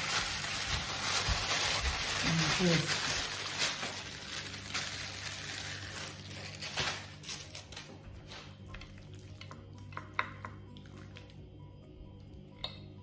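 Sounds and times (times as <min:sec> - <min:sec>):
plastic bag crinkling: 0:00.0 - 0:08.6.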